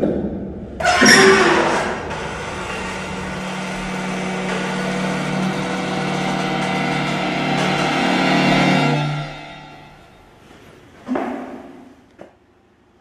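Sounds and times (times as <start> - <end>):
low buzzy drone: 0.7 - 10.5.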